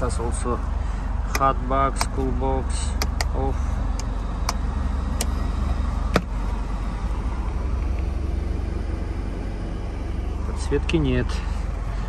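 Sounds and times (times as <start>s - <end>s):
low cabin hum: 0.0s - 12.0s
switch and latch clicks: 3.0s - 3.4s.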